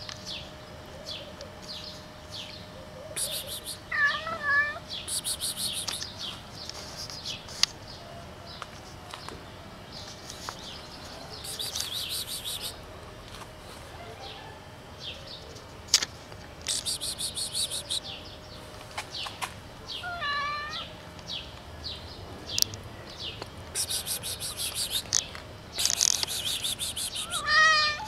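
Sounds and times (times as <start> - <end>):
birds chirping: 0.0 - 12.8, 16.7 - 28.0
cat meowing: 3.9 - 4.8, 20.0 - 20.9, 27.2 - 28.0
sharp clicks: 5.1 - 6.8, 23.8 - 27.4
rapid high bird trilling: 23.8 - 28.0.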